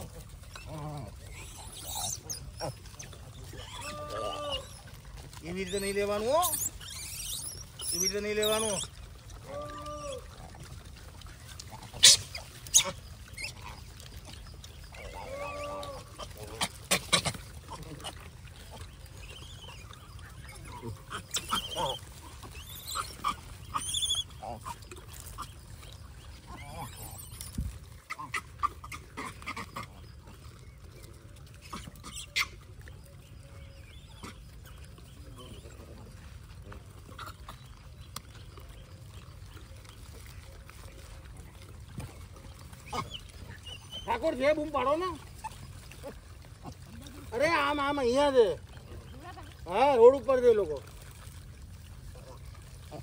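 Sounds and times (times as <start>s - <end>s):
monkey call: 0.0s - 5.0s, 5.6s - 10.4s, 11.8s - 25.6s, 31.6s - 32.7s.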